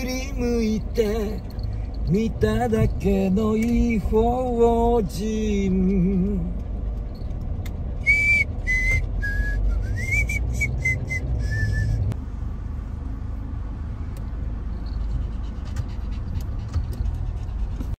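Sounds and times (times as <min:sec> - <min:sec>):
low road rumble inside car: 0:00.0 - 0:18.0
person whistling a tune: 0:08.0 - 0:12.1.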